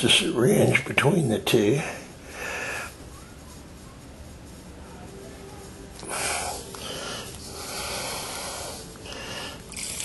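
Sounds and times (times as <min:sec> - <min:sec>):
hissing breaths: 0:01.8 - 0:03.1, 0:06.0 - 0:10.0.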